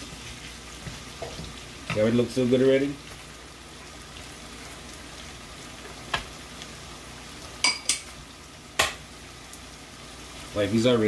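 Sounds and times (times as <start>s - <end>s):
vegetables sizzling in a pan: 0.0s - 11.0s.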